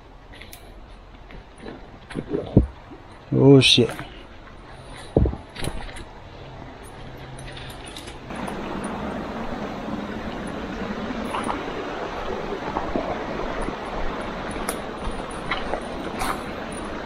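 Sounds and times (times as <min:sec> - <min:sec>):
creek water rushing: 0:08.3 - 0:17.0.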